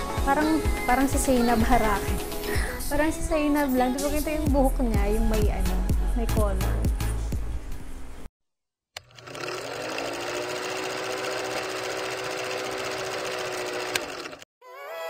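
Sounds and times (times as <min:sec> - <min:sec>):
film projector clattering: 0:09.0 - 0:14.5.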